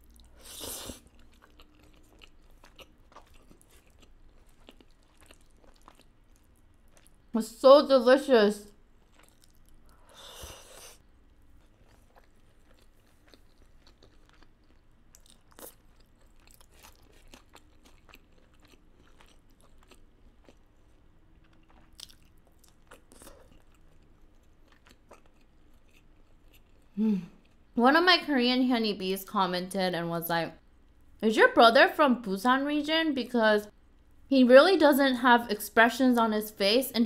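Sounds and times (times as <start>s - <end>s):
chewing food: 0.0s - 7.3s, 8.8s - 27.7s.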